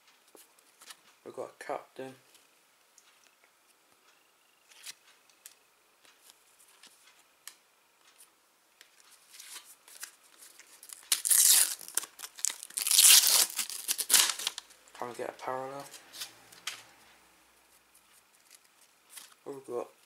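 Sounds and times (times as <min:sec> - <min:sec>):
packet tearing and crinkling: 0:10.7 - 0:14.6.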